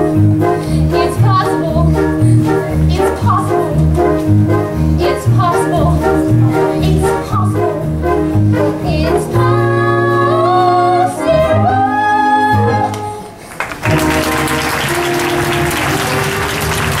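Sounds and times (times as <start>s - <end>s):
musical singing with accompaniment: 0.4s - 13.4s
audience applause: 13.4s - 17.0s.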